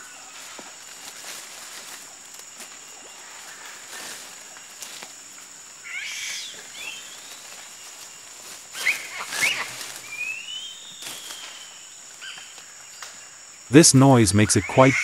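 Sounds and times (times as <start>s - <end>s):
high insect drone: 0.0s - 15.0s
monkeys squealing: 5.8s - 6.6s, 8.8s - 10.2s, 14.4s - 15.0s.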